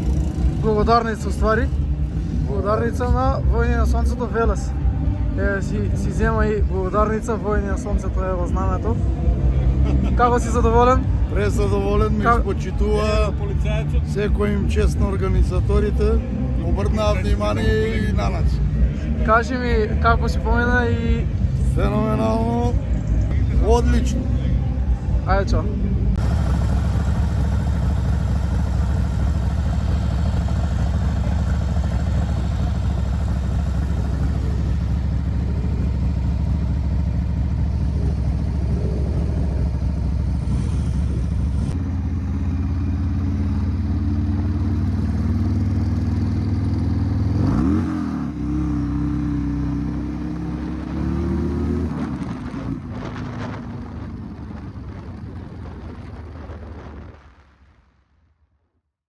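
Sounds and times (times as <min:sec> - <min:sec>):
motorcycle engine accelerating: 0:00.0 - 0:03.8, 0:26.1 - 0:57.1.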